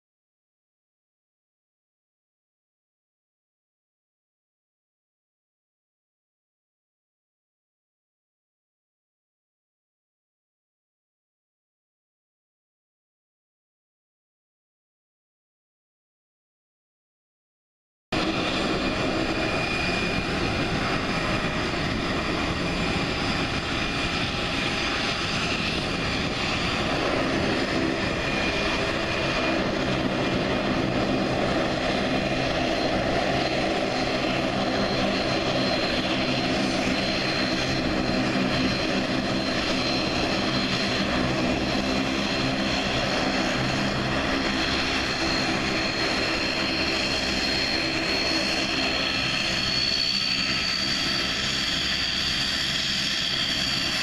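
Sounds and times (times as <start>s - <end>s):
jet engines running: 18.2s - 54.0s.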